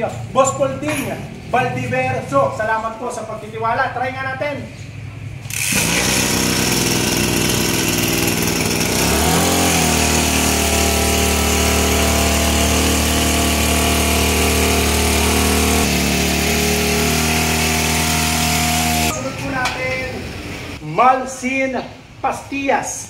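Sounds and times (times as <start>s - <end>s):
two-stroke sprayer engine running: 5.5s - 19.2s.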